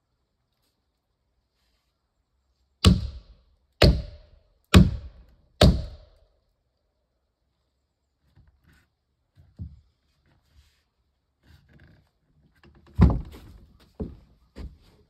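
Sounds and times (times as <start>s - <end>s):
tool striking wood: 2.8s - 6.2s.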